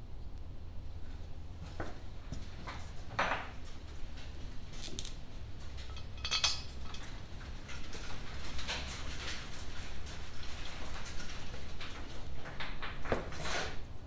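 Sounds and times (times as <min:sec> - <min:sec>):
steady low hum: 0:00.0 - 0:12.9
metal parts clinking and scraping: 0:04.7 - 0:07.1.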